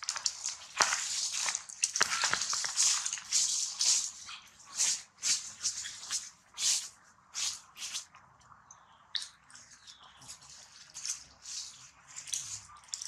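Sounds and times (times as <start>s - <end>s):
dry leaves crackling and rustling: 0.0s - 7.6s.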